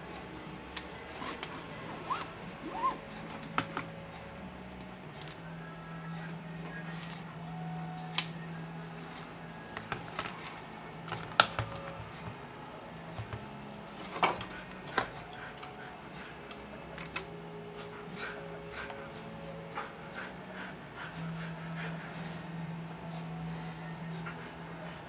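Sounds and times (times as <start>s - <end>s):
steady low hum: 0.0s - 25.0s
tools clicking on workbench: 14.0s - 15.8s.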